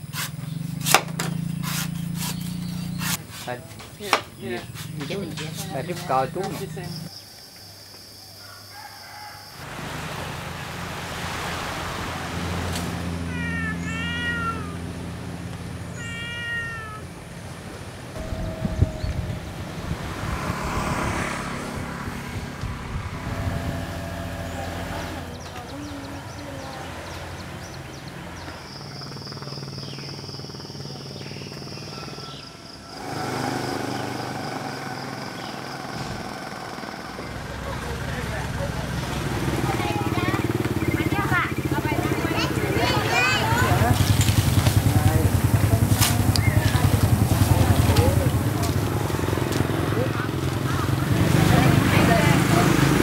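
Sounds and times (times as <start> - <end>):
cat meowing: 13.2 - 14.9, 15.9 - 17.2
high-pitched whine: 18.2 - 20.7
motor humming: 18.2 - 21.0, 21.8 - 26.6.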